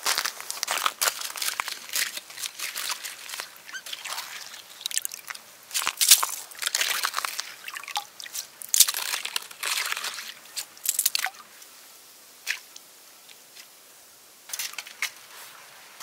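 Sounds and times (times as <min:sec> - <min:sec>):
skimmer scraping slush and ice: 0:00.2 - 0:07.7, 0:08.3 - 0:10.4.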